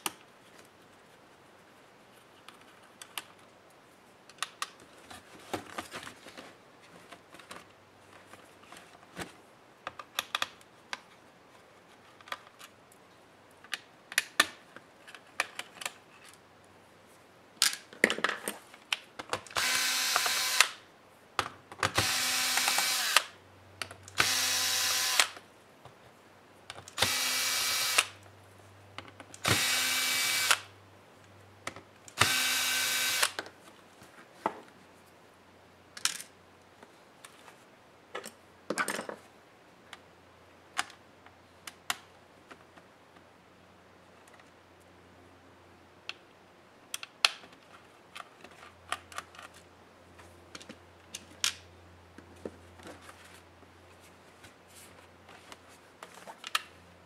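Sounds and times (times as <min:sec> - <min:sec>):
electric screwdriver running: 0:19.6 - 0:20.8, 0:22.0 - 0:23.3, 0:24.2 - 0:25.4, 0:27.0 - 0:28.1, 0:29.4 - 0:30.7, 0:32.2 - 0:33.4.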